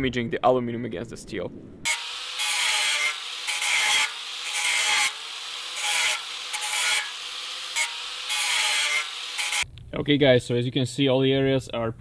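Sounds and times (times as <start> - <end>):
angle grinder grinding metal: 1.9 - 9.6.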